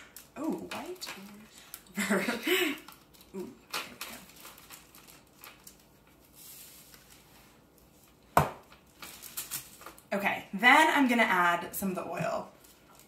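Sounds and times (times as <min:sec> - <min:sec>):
plastic rustling and light taps: 0:00.4 - 0:01.9.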